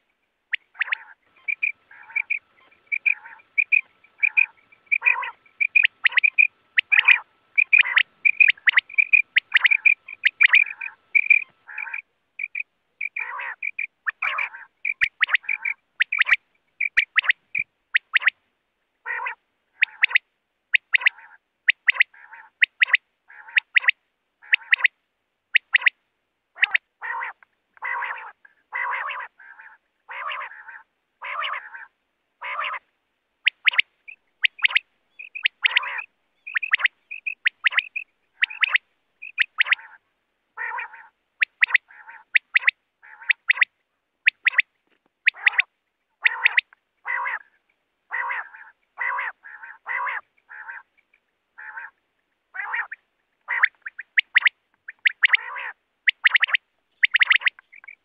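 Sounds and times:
quail calling: 0.0s - 18.4s, 19.0s - 58.0s
sharp high chirps: 0.6s - 18.2s, 33.5s - 39.8s.

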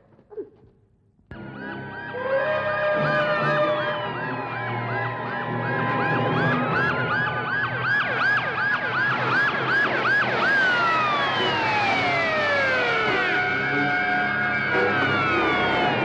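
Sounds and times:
wailing police sirens: 1.5s - 16.0s
fast cycling police siren: 1.8s - 16.0s.

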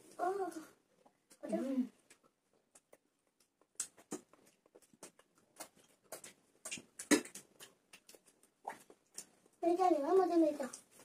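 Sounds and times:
chewing and lip-smacking: 2.0s - 9.6s.

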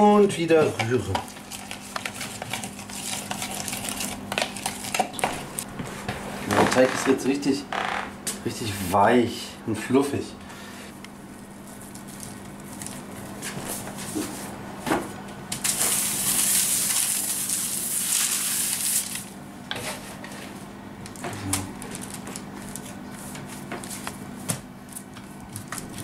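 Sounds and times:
paper rustling and scraping: 1.3s - 6.1s, 15.6s - 20.6s.

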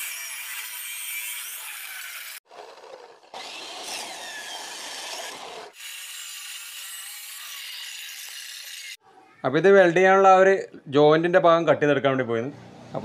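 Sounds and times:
chop saw grinding metal: 0.0s - 9.0s.

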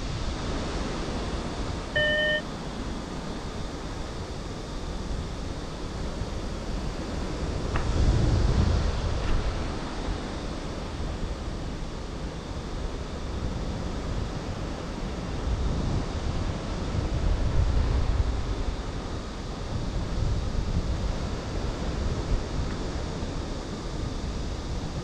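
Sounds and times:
wind buffeting microphone: 3.7s - 25.0s.

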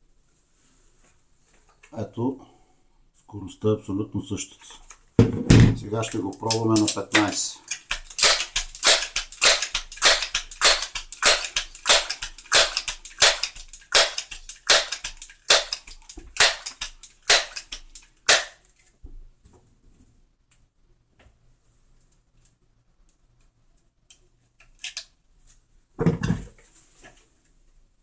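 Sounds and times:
air pistol pumping strokes: 6.4s - 18.5s.

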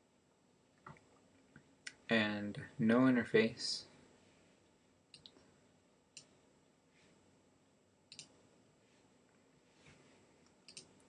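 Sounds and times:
computer mouse clicks: 5.1s - 5.4s, 8.1s - 8.3s, 10.6s - 10.9s.

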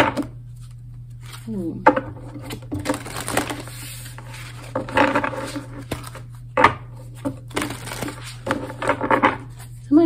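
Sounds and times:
steady low hum: 0.0s - 10.0s
cards being shuffled: 2.4s - 6.4s, 7.0s - 9.9s.

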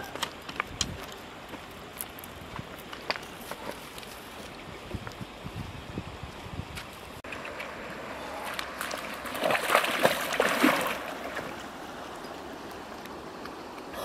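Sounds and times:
running water: 7.2s - 14.0s
feet splashing through water: 7.3s - 12.2s.

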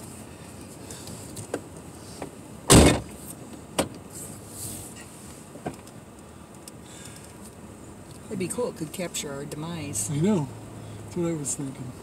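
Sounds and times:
loud short thump: 2.7s - 3.1s.

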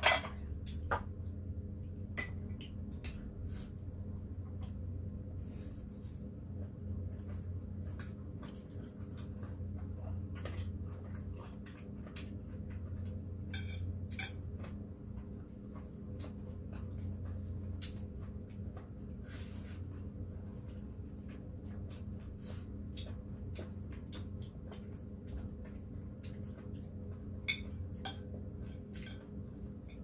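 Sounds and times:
steady low hum: 0.0s - 30.0s
chewing and mouth noises: 5.9s - 29.9s.

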